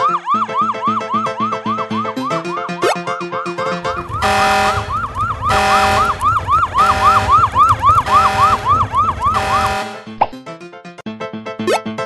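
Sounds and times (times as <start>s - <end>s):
cartoon siren wail: 0.0s - 2.9s, 3.9s - 10.0s.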